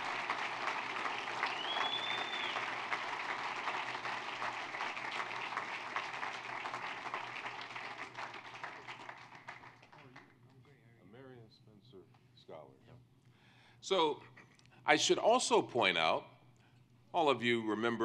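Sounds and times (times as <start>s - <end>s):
audience applauding: 0.0s - 10.3s
short high whistle: 1.4s - 2.6s.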